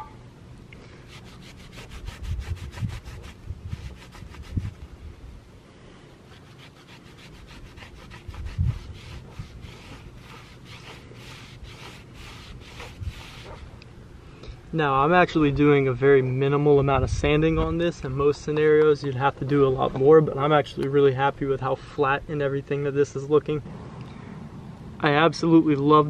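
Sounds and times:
towel rubbing wheel rim: 0:01.1 - 0:04.8, 0:06.3 - 0:13.7.

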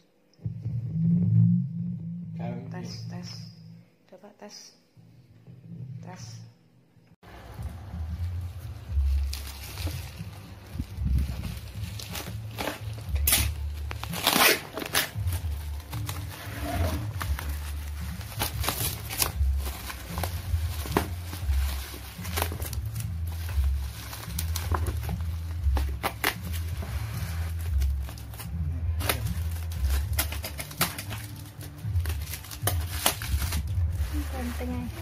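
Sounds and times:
low rumble: 0:00.4 - 0:04.0
bubble wrap crinkling: 0:07.4 - 0:35.0
packaging tape pulled: 0:12.0 - 0:16.2.

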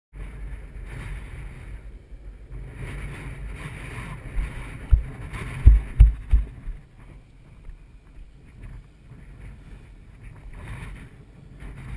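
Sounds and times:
skateboard wheels rumbling on asphalt: 0:00.2 - 0:11.9
wind buffeting microphone: 0:00.2 - 0:11.9
sharp low thumps: 0:04.4 - 0:06.8.

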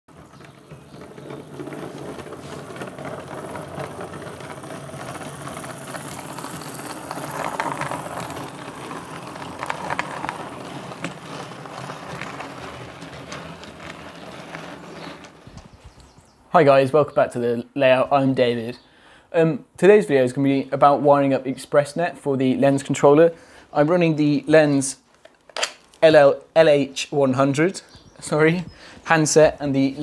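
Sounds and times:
wheels clicking over track: 0:00.1 - 0:16.4
model train whirring: 0:01.0 - 0:15.6.

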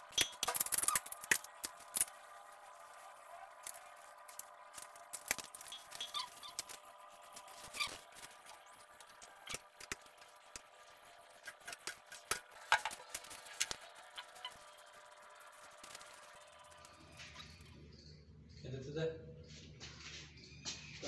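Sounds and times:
rubber gasket squeaks: 0:05.6 - 0:06.8, 0:07.4 - 0:08.4.

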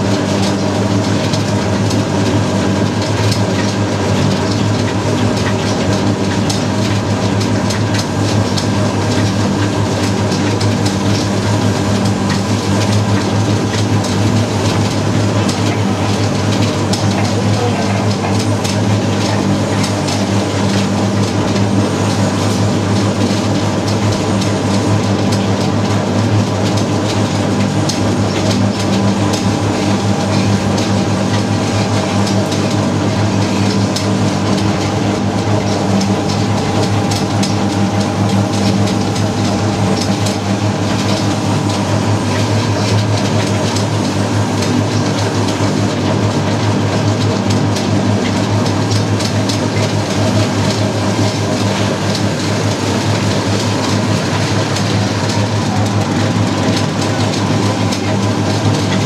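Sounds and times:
motor hum: 0:00.0 - 0:46.6
mixing drum rattling and clattering: 0:00.0 - 0:59.0.

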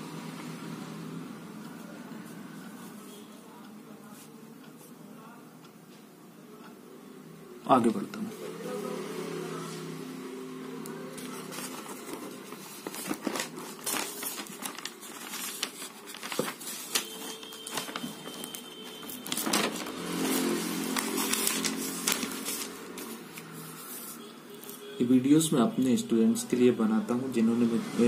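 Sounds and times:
paper pages rustling: 0:11.1 - 0:24.8.

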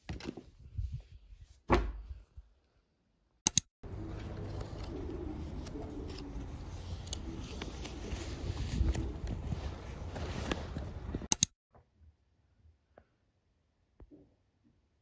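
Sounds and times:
dull thump: 0:01.7 - 0:02.1
quick clicks: 0:03.4 - 0:03.7, 0:11.2 - 0:11.6
low outdoor rumble: 0:03.8 - 0:11.3
handling noises: 0:03.9 - 0:11.5.

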